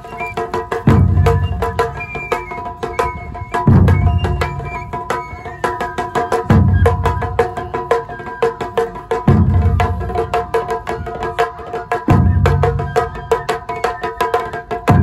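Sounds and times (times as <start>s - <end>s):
large drum booming: 9.2s - 11.4s.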